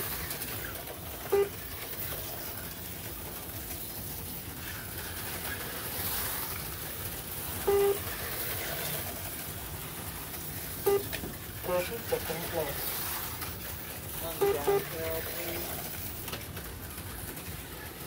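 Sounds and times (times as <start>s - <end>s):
slot cars whirring on track: 0.0s - 18.0s
electronic beeps: 7.7s - 8.0s, 10.9s - 11.2s.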